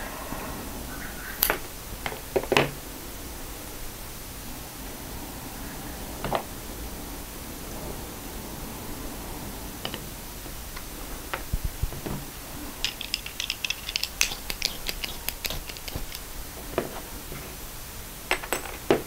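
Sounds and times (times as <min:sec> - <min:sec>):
small camera parts clicking: 0:12.8 - 0:16.2.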